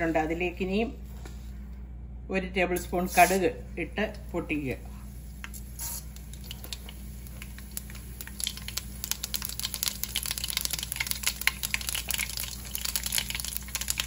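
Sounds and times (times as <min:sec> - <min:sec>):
seeds sizzling and popping in oil: 0:05.2 - 0:14.0.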